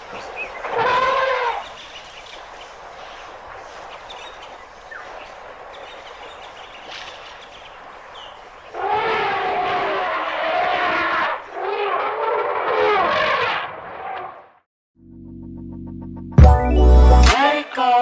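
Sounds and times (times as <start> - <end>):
elephant trumpeting: 0.5 - 1.8, 8.7 - 14.4
steady hiss: 1.6 - 8.6.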